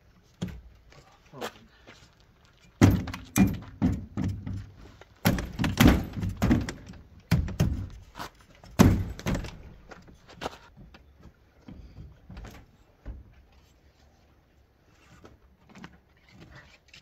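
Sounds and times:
thunks and knocks of gear: 2.8 - 10.8.

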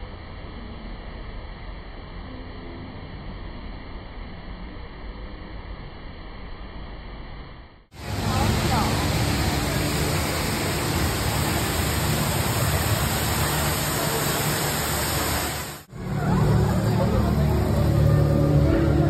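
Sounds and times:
low steady hum: 0.0 - 19.0
falling water rushing: 8.0 - 19.0.

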